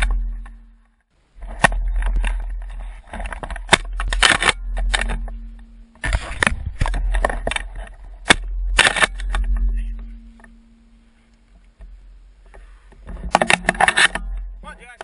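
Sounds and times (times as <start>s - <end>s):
gun handling clicks and rustle: 1.4s - 9.7s, 11.3s - 14.4s.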